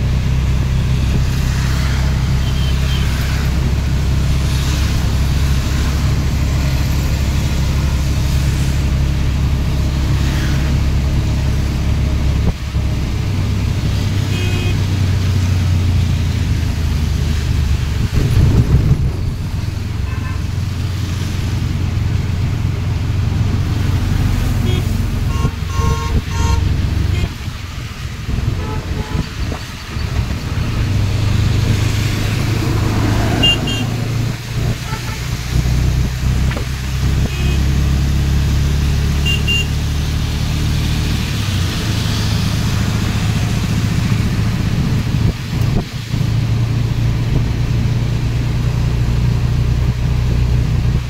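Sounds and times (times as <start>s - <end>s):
auto rickshaw engine running: 0.0s - 51.0s
wet tyres and rain hissing: 0.0s - 51.0s
vehicle horn toots: 14.3s - 14.8s, 20.0s - 20.4s, 24.6s - 27.4s, 28.6s - 29.3s, 33.4s - 34.0s, 34.8s - 35.3s, 37.2s - 37.7s, 39.2s - 39.8s.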